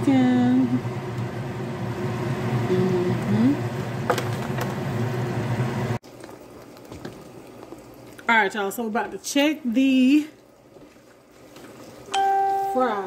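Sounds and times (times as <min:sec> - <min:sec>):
exhaust fan humming: 0:00.0 - 0:06.6.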